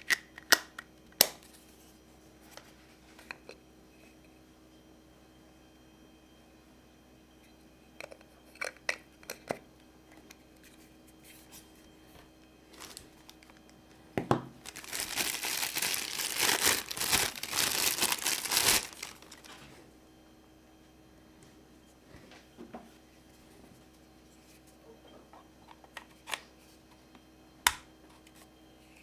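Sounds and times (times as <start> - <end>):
plastic bag crinkling: 12.7 - 13.6, 14.6 - 19.6.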